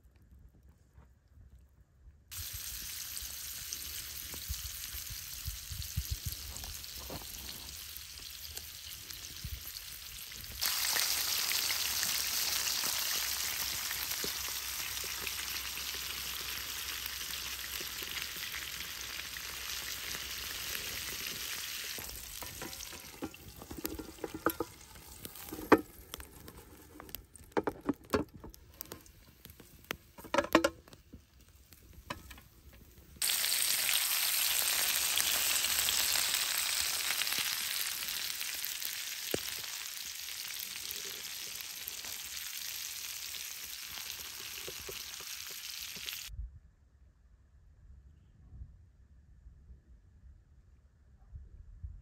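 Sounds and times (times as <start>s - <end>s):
fish sizzling in hot oil: 2.3s - 30.8s, 31.4s - 46.3s
pan clicks and knocks: 22.4s - 25.9s, 30.2s - 30.9s.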